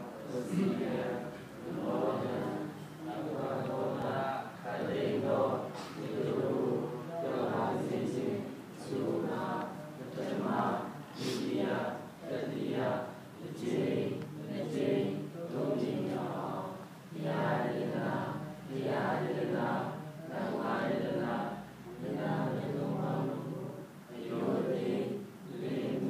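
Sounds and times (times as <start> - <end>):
group chanting in unison: 0.0 - 26.0.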